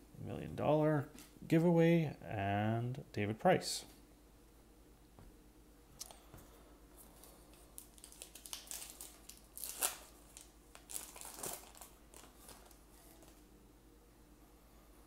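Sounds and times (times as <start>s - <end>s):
foil wrapper crinkling: 7.0s - 13.4s.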